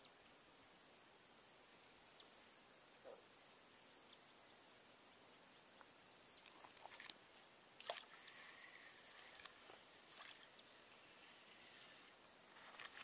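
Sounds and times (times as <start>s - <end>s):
soft rustling: 7.9s - 13.0s.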